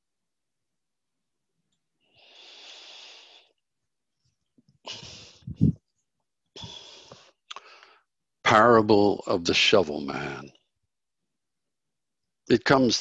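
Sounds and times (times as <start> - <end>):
man breathing into microphone: 6.6 - 8.1.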